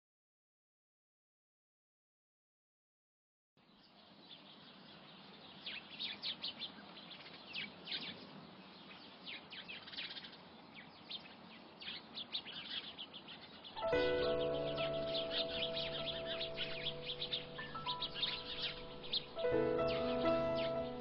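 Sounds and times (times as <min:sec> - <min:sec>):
faint outdoor hiss: 0:03.6 - 0:21.0
small birds chirping: 0:03.6 - 0:21.0
music with held notes: 0:13.8 - 0:21.0.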